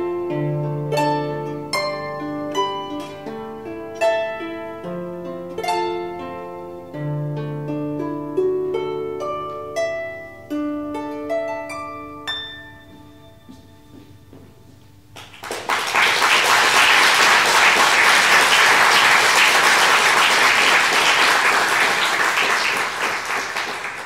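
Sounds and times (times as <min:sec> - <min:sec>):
harp notes ringing: 0:00.7 - 0:14.7
audience applause: 0:15.2 - 0:24.0.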